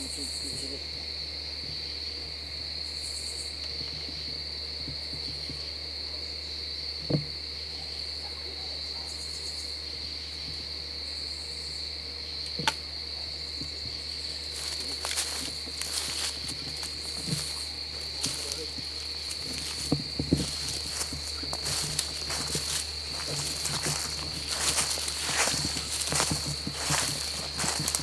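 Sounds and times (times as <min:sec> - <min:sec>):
crickets trilling: 0:00.0 - 0:28.0
footsteps on dry leaves: 0:14.3 - 0:28.0.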